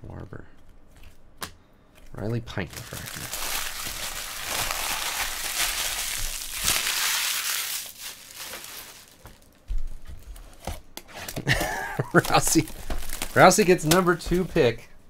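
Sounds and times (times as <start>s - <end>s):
packaging crinkling: 2.5s - 9.6s, 12.0s - 14.8s.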